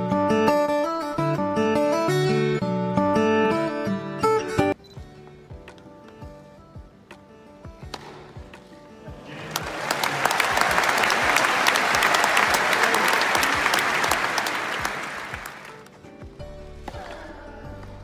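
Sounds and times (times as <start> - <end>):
crowd applauding: 9.2 - 16.0.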